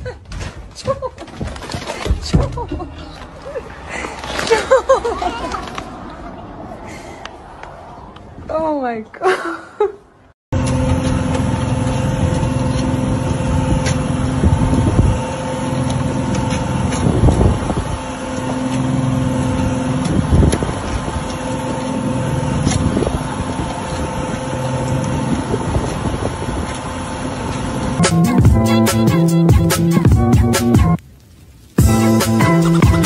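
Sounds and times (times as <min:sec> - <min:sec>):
boat engine humming: 0:01.6 - 0:09.1, 0:10.5 - 0:31.1.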